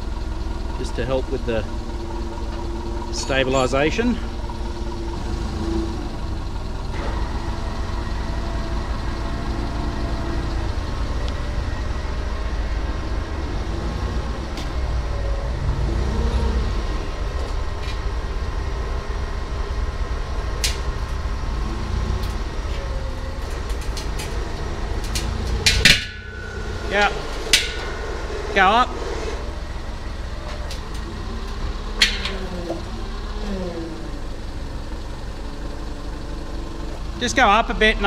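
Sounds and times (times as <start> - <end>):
forklift engine rumbling: 0.0 - 38.0
sharp metal clicks: 23.0 - 28.6, 30.6 - 32.6
faint wavering whine: 24.3 - 32.9.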